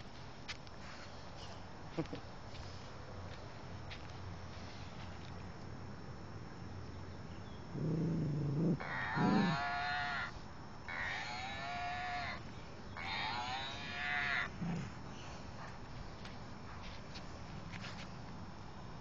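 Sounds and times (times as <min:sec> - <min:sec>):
dog toy mooing: 0:08.8 - 0:10.3, 0:10.9 - 0:12.4, 0:13.0 - 0:14.5.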